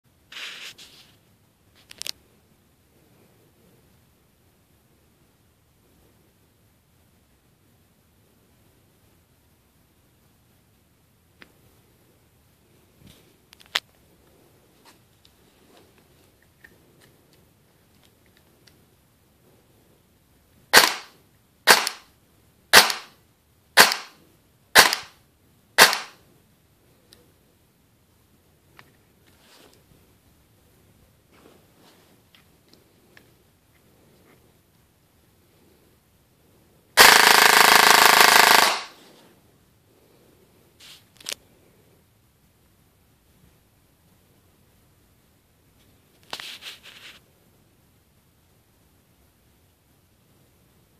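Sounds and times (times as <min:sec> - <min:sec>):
airsoft gun gearbox bursts: 0:37.0 - 0:38.9.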